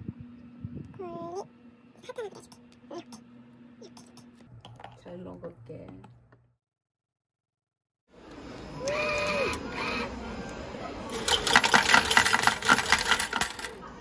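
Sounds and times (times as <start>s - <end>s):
coins clattering into metal tray: 11.1s - 13.8s.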